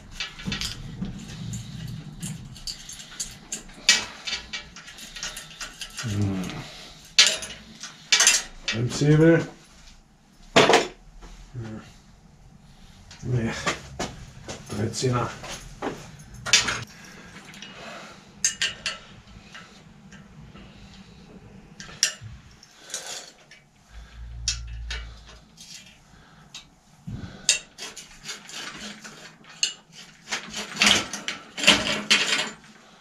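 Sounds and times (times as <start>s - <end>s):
low rumble: 0.0s - 3.9s, 11.0s - 17.4s, 23.9s - 25.5s
metal clinking and knocking: 0.0s - 8.8s, 15.4s - 17.7s, 18.4s - 20.3s.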